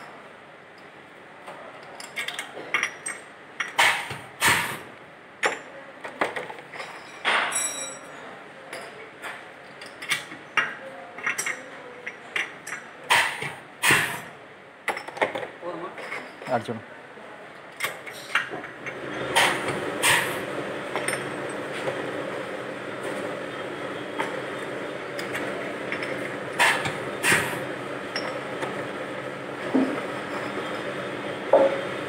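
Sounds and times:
glass bottles clinking: 0:06.6 - 0:08.2, 0:20.8 - 0:22.0, 0:24.2 - 0:28.7, 0:29.7 - 0:31.9.

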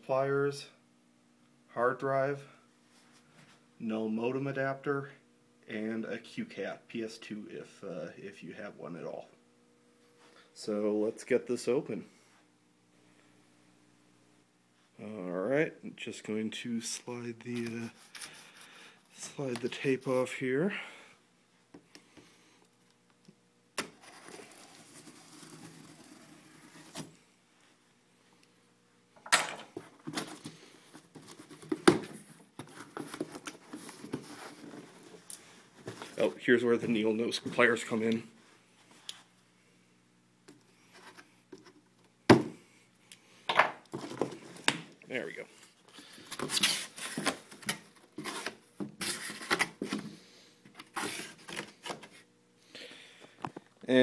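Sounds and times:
tape and cardboard ripping: 0:23.8 - 0:27.1, 0:46.4 - 0:49.9
cardboard rustling and scraping: 0:23.9 - 0:27.2, 0:29.8 - 0:37.8, 0:46.2 - 0:50.1, 0:50.8 - 0:52.2
cardboard crackling and scraping: 0:24.0 - 0:27.2.

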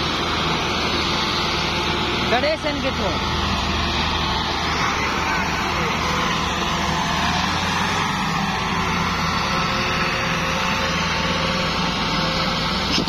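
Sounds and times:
diesel tractors running under load: 0:00.0 - 0:13.0.

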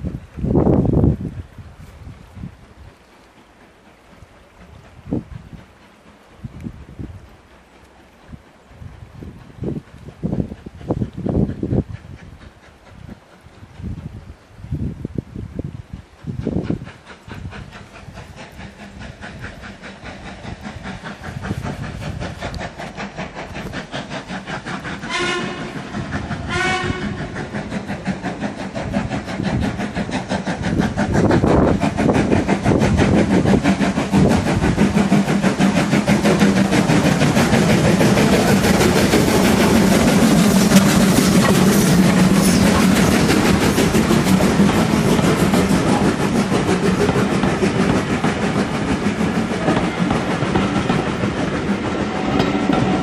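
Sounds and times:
steam locomotive chuffing: 0:00.0 - 0:53.0
train wheels clattering over rail joints: 0:00.0 - 0:53.0
steam whistle blasts: 0:25.1 - 0:27.4.

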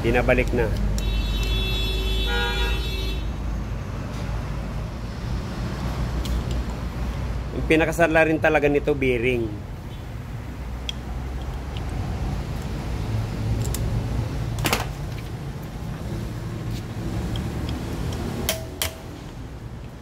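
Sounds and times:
steel rod tapping metal hub: 0:17.3 - 0:19.1.

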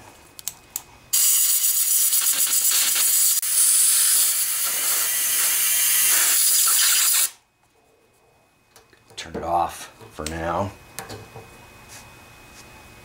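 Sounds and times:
compressed air hissing: 0:01.1 - 0:07.4.

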